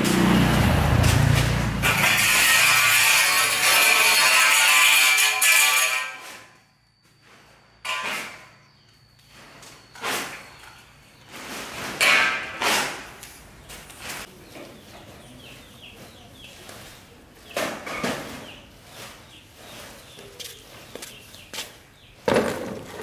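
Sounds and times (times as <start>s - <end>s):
metal tools clanking on concrete: 1.0s - 14.0s, 17.4s - 18.6s, 22.0s - 23.0s.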